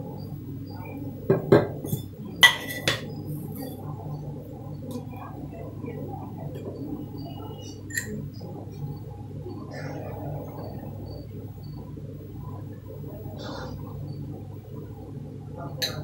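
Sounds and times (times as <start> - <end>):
steady low hum: 0.0 - 16.0
kitchenware clinking: 1.3 - 3.1, 7.9 - 8.2.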